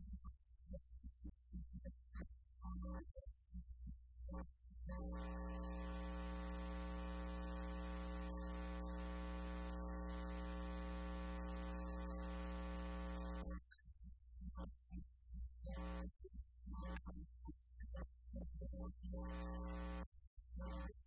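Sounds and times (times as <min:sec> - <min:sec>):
electrical hum and buzz: 0:04.9 - 0:13.6, 0:15.6 - 0:16.1, 0:19.1 - 0:21.0.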